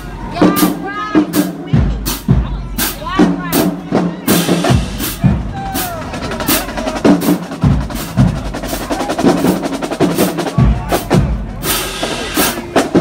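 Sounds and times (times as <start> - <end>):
snare drum strokes: 2.8 - 13.0.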